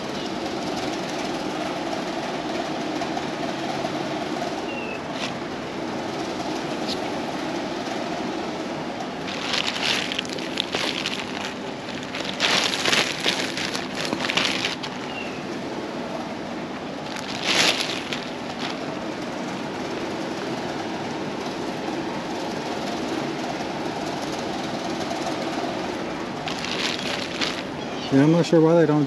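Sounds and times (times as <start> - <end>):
steady background noise: 0.0 - 29.0
clothing being handled: 9.2 - 15.4, 17.0 - 20.6, 26.4 - 27.8
plastic bag rustling: 9.2 - 15.4, 17.0 - 20.1, 26.4 - 27.8.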